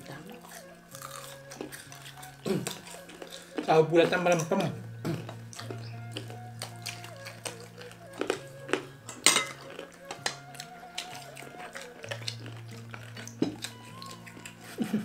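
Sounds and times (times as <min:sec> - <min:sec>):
soft backing tune: 0:00.0 - 0:15.0
spoons clinking on plates: 0:09.1 - 0:10.4.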